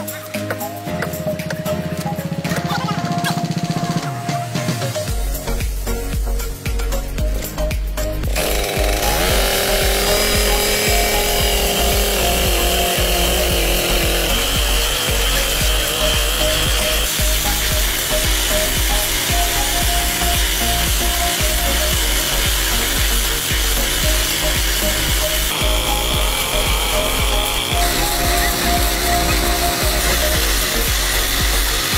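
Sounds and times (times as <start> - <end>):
music: 0.0 - 31.9
saw grinding through steel rail: 8.2 - 31.9.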